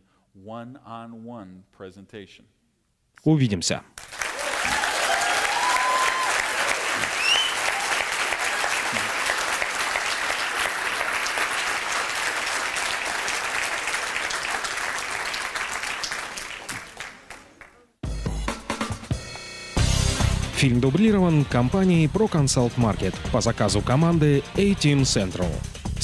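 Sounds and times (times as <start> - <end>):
audience applauding: 4.0 - 17.9
crowd calls: 4.3 - 10.2.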